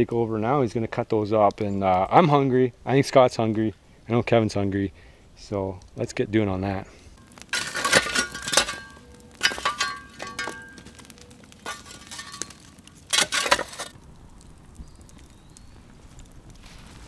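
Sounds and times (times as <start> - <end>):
tool clinking on coals and rocks: 6.6 - 14.0.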